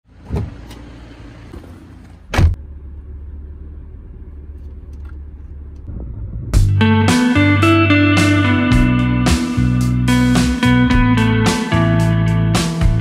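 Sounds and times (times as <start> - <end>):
low car rumble: 0.1 - 7.2
car door shutting thud: 2.3 - 2.6.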